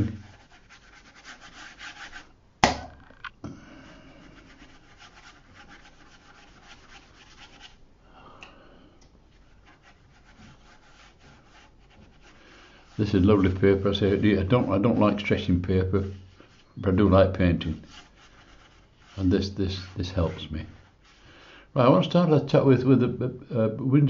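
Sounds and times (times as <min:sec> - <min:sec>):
brush rubbing on paper: 0:00.0 - 0:02.4, 0:04.1 - 0:07.8, 0:09.3 - 0:21.3
sharp knock: 0:02.6 - 0:03.1.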